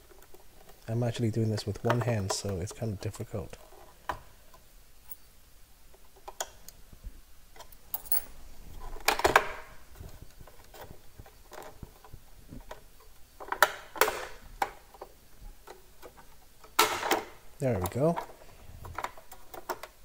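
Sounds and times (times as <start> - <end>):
plastic scraping rattles: 8.8 - 20.0.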